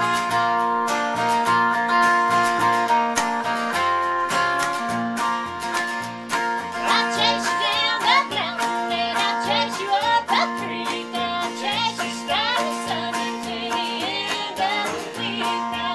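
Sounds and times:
country song on guitars: 0.0 - 15.9
woman singing: 6.8 - 15.9.

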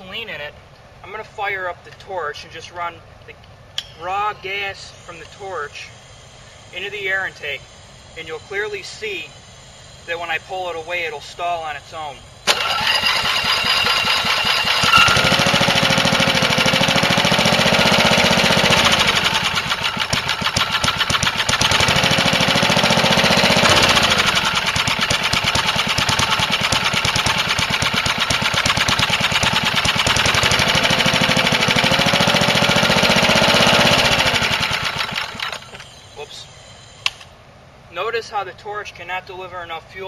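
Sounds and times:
lawnmower engine running unevenly: 12.5 - 35.9.

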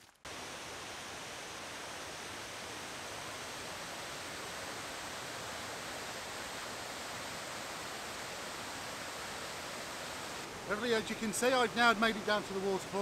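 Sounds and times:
waterfall rushing: 0.3 - 13.0.

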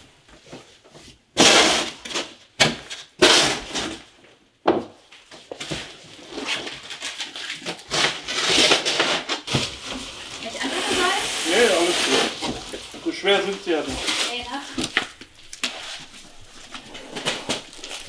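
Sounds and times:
plastic wrapping crinkling: 5.5 - 18.0.

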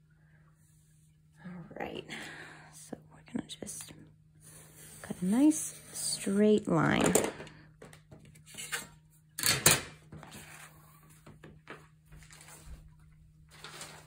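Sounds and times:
faint steady hum: 0.0 - 14.0
paper rustling: 10.1 - 14.0.

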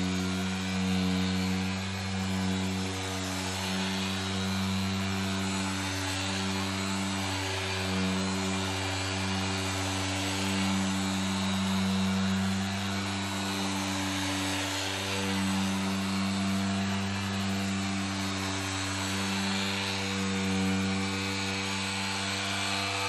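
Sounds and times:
electric polisher whirring: 0.0 - 23.0.

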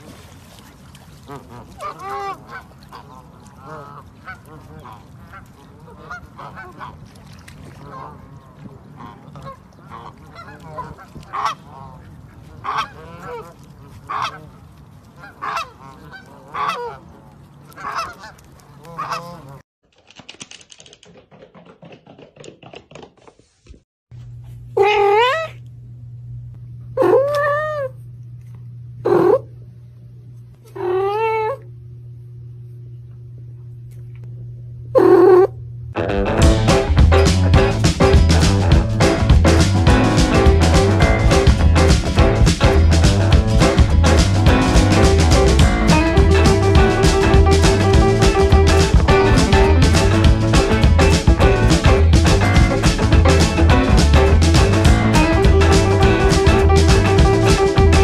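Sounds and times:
goose calling: 1.2 - 7.0, 7.7 - 14.6, 15.2 - 19.6.

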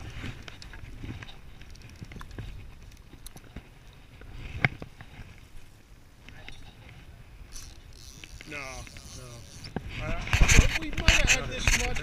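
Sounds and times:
wind rumbling on microphone: 0.0 - 12.0
fishing reel handling clicks: 7.5 - 9.8.

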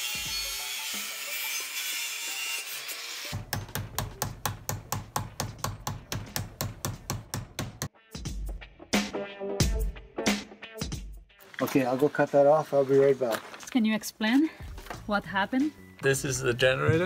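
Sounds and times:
saw cutting metal pipe: 0.0 - 4.6.

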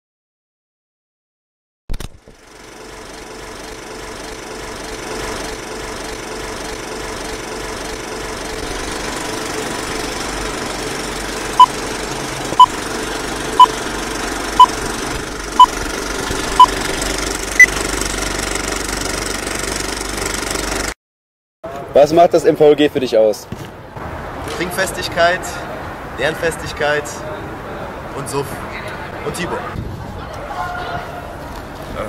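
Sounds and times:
film projector rattling: 15.7 - 20.9.

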